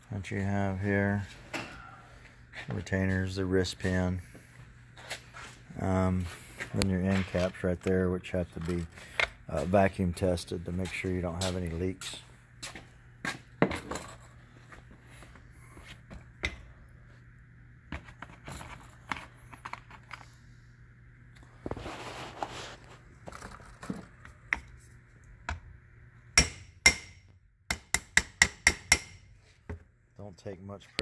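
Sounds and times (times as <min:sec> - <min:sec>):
rubbing and handling: 0:21.7 - 0:24.2.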